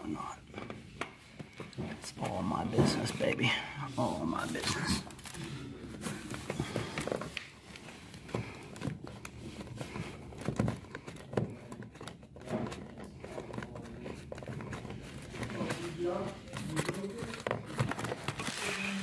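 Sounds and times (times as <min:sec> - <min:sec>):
cable handling clicks and knocks: 0:06.0 - 0:18.8.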